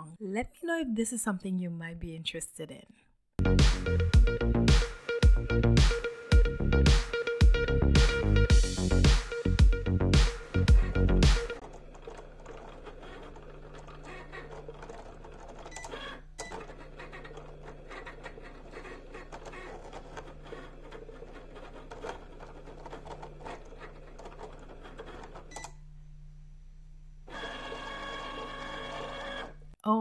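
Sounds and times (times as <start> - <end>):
cutting machine motors whirring: 10.6 - 25.5, 27.3 - 29.6.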